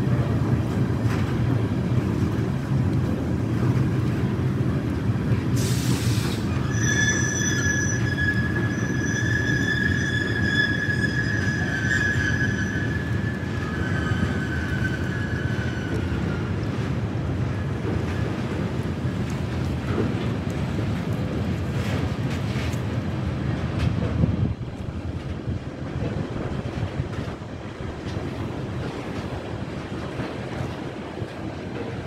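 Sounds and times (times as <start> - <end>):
freight train rumbling: 0.0 - 32.0
brief hiss: 5.6 - 6.5
train wheels squealing: 5.6 - 16.6.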